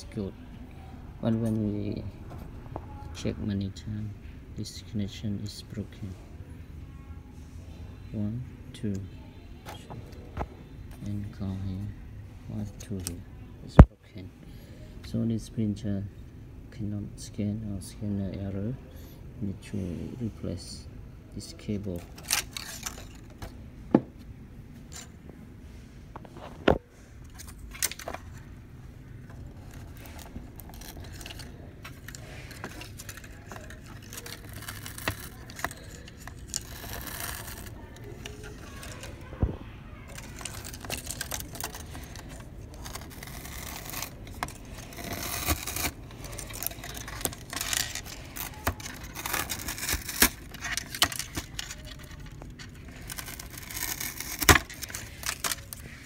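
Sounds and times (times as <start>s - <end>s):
rustling and scraping of cable: 21.4s - 56.0s.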